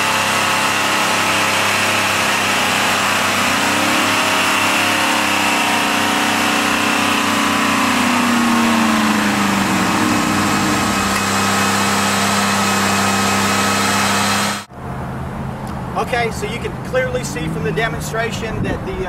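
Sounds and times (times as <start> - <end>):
car engines revving: 0.0 - 19.0.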